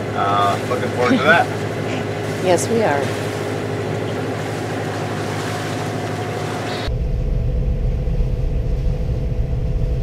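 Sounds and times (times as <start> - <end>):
wind and water rushing: 0.0 - 6.9
boat engine drone: 0.0 - 10.0.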